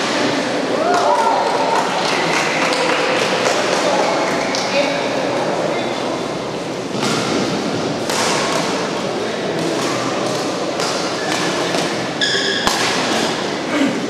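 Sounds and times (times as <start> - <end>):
rackets hitting shuttlecock: 6.9 - 13.5
short high squeak: 12.2 - 12.7.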